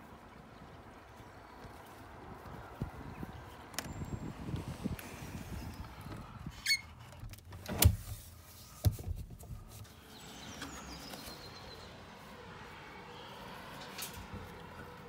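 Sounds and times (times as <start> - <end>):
window sash pushed open: 6.6 - 9.2.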